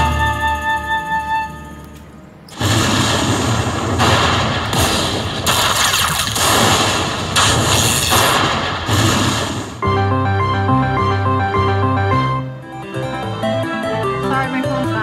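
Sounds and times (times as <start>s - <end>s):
loud noisy blast surges: 2.5s - 9.8s
slot machine tune: 9.8s - 15.0s.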